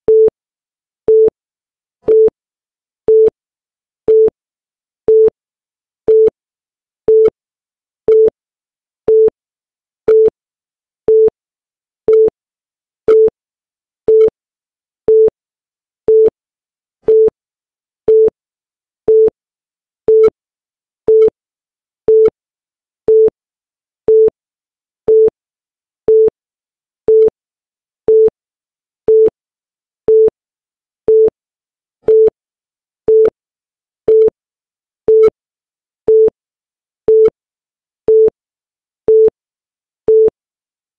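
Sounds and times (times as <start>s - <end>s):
click: 34.1s - 34.3s.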